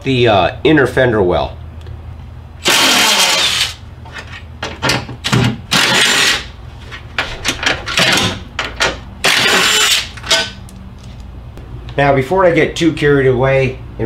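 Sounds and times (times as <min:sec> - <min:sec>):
sharp clicks and knocks: 0:07.2 - 0:09.0.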